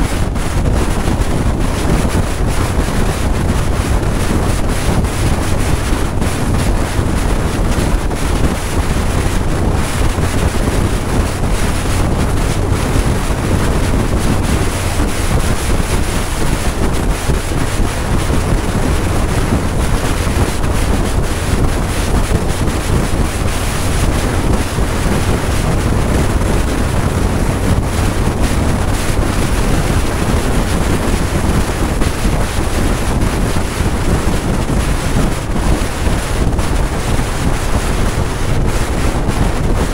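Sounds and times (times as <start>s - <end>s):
low motorcycle rumble: 0.0s - 39.9s
wind buffeting microphone: 0.0s - 39.9s.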